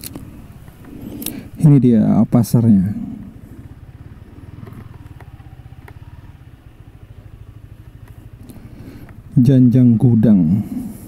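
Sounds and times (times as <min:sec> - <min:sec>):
motorcycle engine running: 0:00.0 - 0:11.0
faint clicks: 0:04.6 - 0:06.1, 0:08.0 - 0:09.2.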